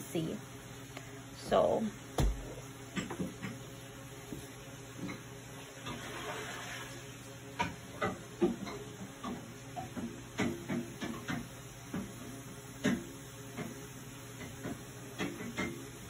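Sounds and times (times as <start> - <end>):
water heating hiss: 5.5 - 7.4.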